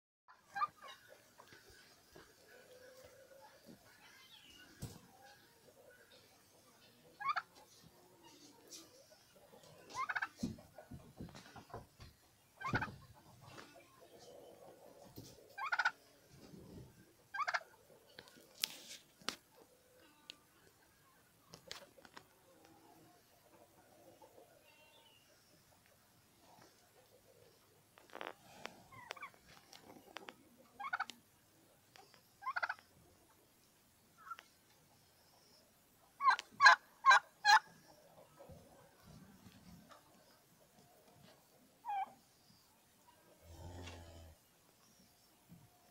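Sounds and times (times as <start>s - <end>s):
turkeys gobbling: 0.3s - 3.8s, 7.0s - 11.8s, 12.6s - 16.1s, 17.1s - 18.4s, 28.9s - 31.2s, 32.0s - 32.9s, 36.1s - 42.2s.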